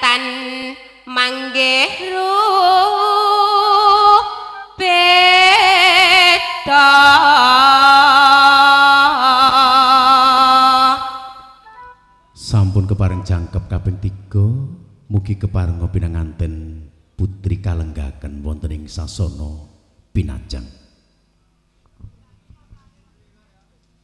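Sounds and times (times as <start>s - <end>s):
woman singing with vibrato: 0.0s - 11.7s.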